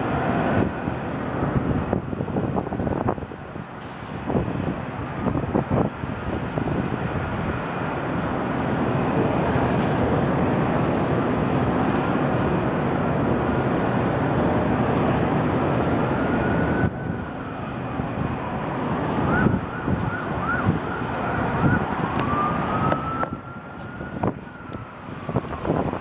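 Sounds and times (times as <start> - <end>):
wind on microphone: 0.1 - 10.7, 13.2 - 26.0
emergency siren wailing and yelping: 15.2 - 26.0.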